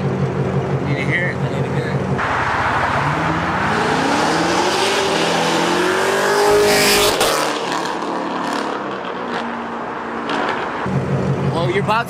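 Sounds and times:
car accelerating past: 2.2s - 10.9s.

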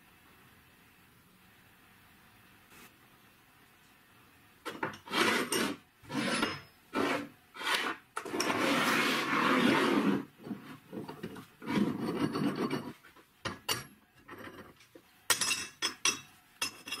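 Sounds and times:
steel scraping on wooden bench: 4.7s - 13.1s.

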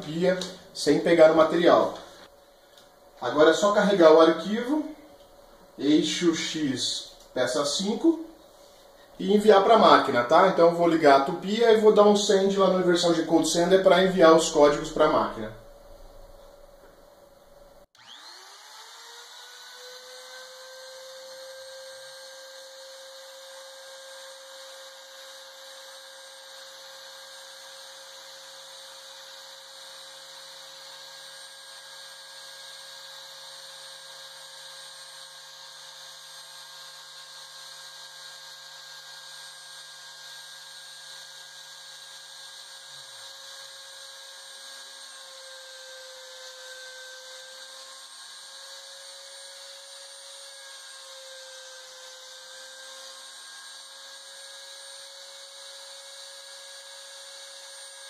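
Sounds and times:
router spindle whining: 18.0s - 58.0s.

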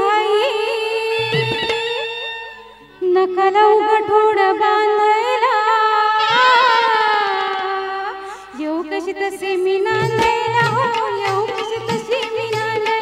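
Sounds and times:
woman singing into a microphone: 0.0s - 13.0s
hand-drum strokes: 9.9s - 13.0s.

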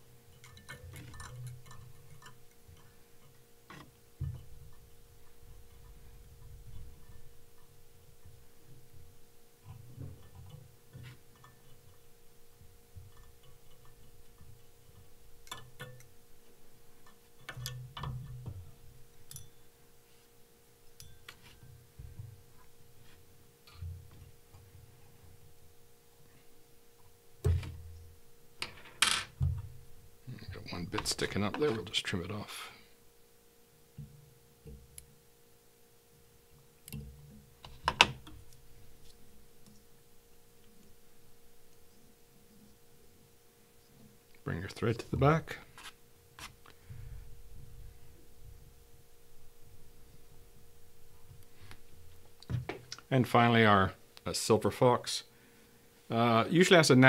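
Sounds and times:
steady low hum: 0.0s - 57.0s
small clicks and ticks: 0.2s - 8.8s.

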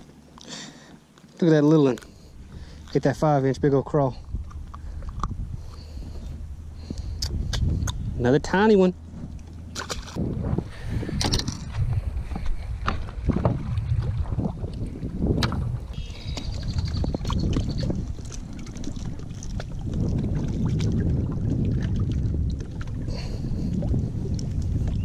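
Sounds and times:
wind rumbling on microphone: 2.0s - 25.0s
knocks and clatter on boat: 9.1s - 23.0s.

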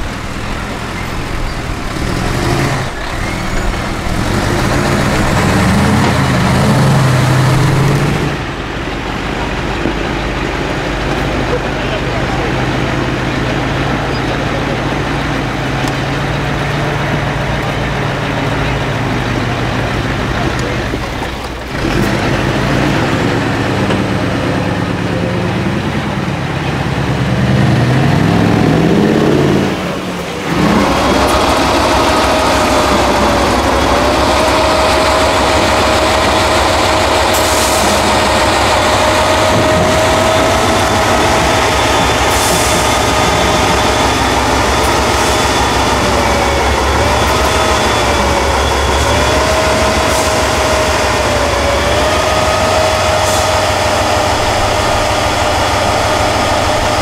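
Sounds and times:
diesel truck engine revving: 0.0s - 57.0s
high whine: 26.6s - 57.0s.

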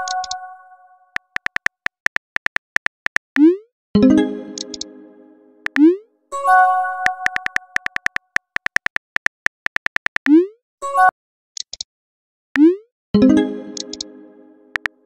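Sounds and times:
keyboard tap clicks: 0.0s - 0.4s, 1.2s - 3.4s, 4.6s - 4.9s, 5.7s - 5.9s, 7.1s - 10.3s, 13.8s - 14.1s.

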